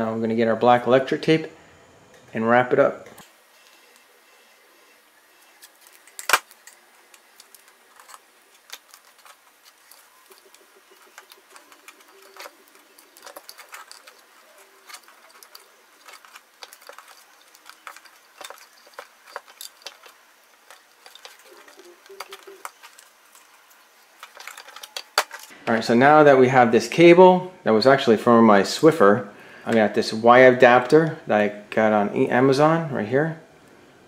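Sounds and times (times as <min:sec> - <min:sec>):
tape crackling and clicking: 0:05.3 - 0:25.8.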